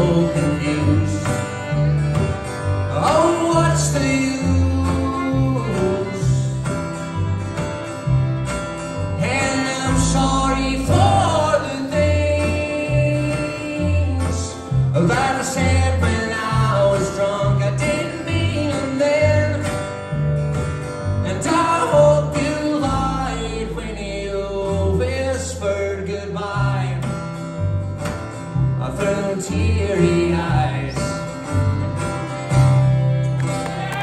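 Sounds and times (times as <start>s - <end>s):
plucked upright bass: 0.0s - 34.0s
strummed acoustic guitar: 0.0s - 34.0s
fiddle: 31.5s - 34.0s.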